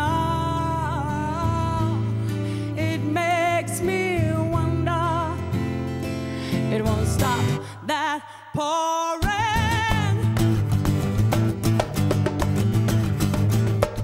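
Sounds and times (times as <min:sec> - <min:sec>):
woman singing with vibrato: 0:00.0 - 0:05.8, 0:06.4 - 0:10.5
strummed acoustic guitar: 0:00.0 - 0:07.9, 0:09.2 - 0:14.0
hand drum: 0:09.3 - 0:14.0.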